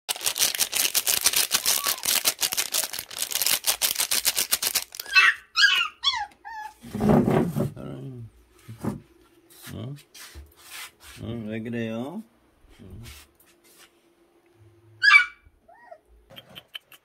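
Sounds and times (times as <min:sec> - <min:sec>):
plastic sachet crinkling: 0:00.1 - 0:05.2
puppy whining: 0:01.6 - 0:02.9, 0:05.0 - 0:06.9, 0:15.0 - 0:17.0.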